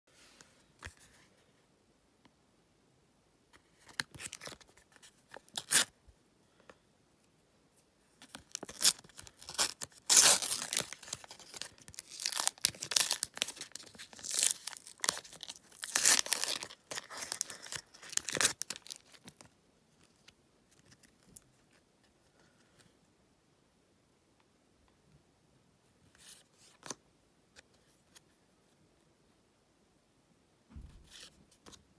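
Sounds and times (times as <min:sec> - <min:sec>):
sticker packet tearing: 0:08.3 - 0:19.2.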